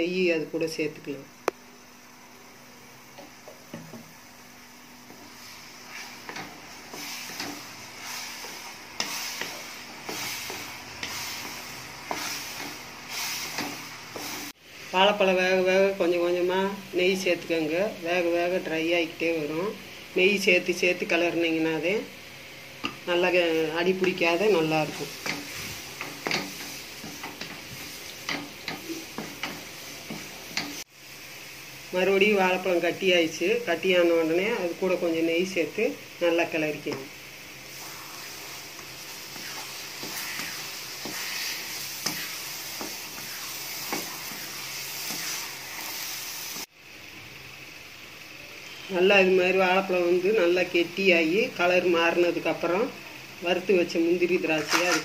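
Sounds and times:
spatula scraping and sizzling in pan: 3.2 - 14.9, 22.7 - 32.6, 37.2 - 46.7, 54.4 - 55.0.

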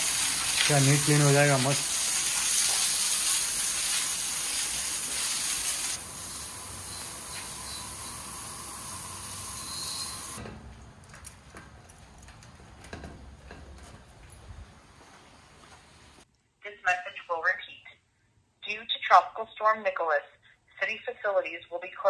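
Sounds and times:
hose water jet hissing: 0.0 - 10.4.

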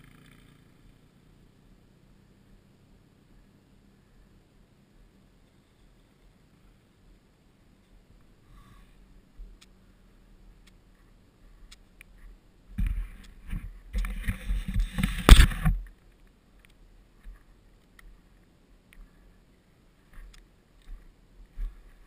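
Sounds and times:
rustling on camera microphone: 10.9 - 22.0.

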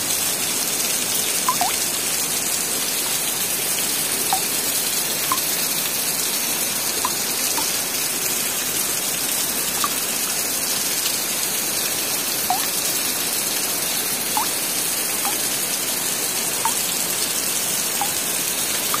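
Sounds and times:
steady rain hiss: 0.0 - 19.0
short plinking notes: 1.5 - 1.8, 12.5 - 12.7.

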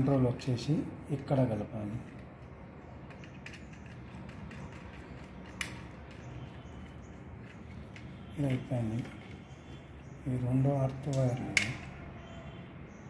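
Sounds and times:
screwdriver creaking and clicking: 2.0 - 9.8.

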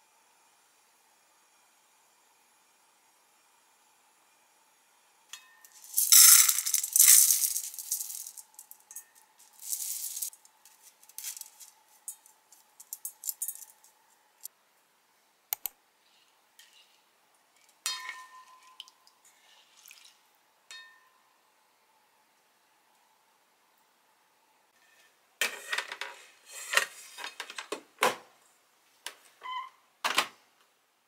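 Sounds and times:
rice grains pouring into pot: 5.7 - 8.8, 9.4 - 10.4
utensils tapping pot: 17.8 - 18.9.

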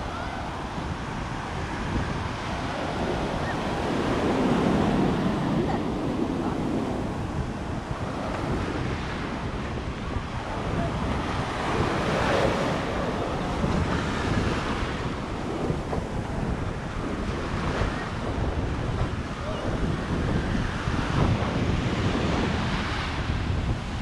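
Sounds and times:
sea waves washing on sand: 0.0 - 24.0
wind buffeting microphone: 0.0 - 24.0.

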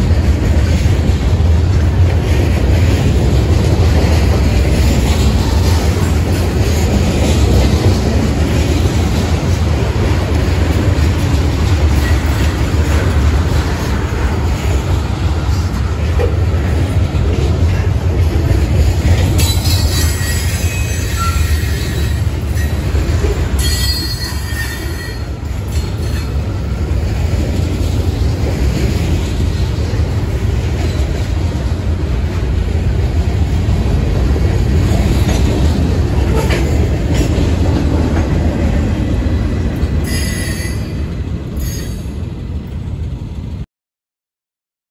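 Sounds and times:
train wheels rumbling on rails: 0.0 - 43.7
wheel squeals: 19.4 - 22.9, 23.6 - 26.4.

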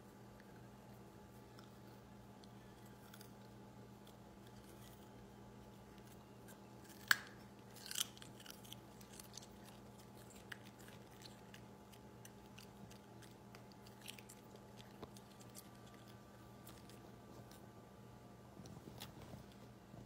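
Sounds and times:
faint steady hum: 0.0 - 20.0
dog crunching a carrot: 2.8 - 17.7.

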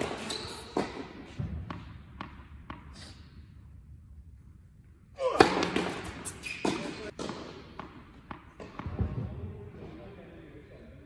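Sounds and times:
racket hitting ball: 0.0 - 2.9, 5.2 - 9.1
tennis ball bouncing on court: 0.1 - 2.9, 5.4 - 9.2.

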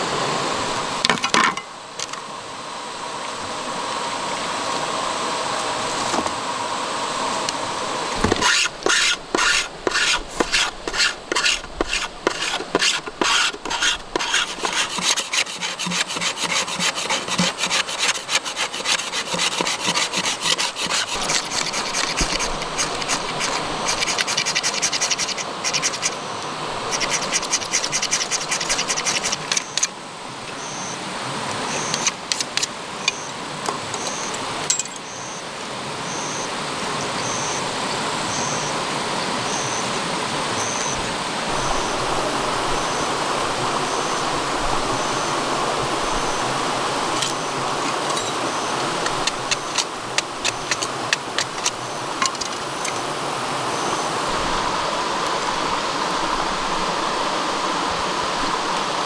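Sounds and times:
shallow stream rushing: 0.0 - 59.0
metal scraping fire-starting rod: 8.2 - 26.2, 26.9 - 29.9, 31.8 - 32.7, 49.0 - 53.0.

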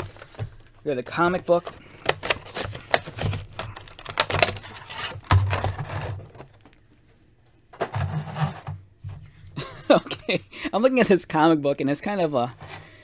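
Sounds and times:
plastic crinkling against card: 0.0 - 6.8.

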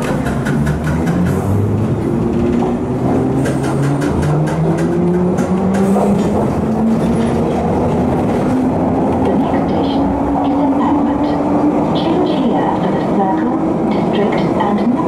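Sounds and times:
wheels clicking over rails: 0.0 - 9.5.

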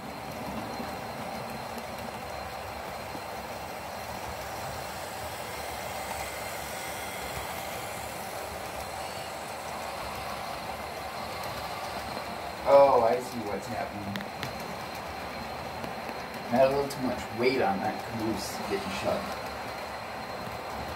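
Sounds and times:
model train running on rails: 0.0 - 20.9.

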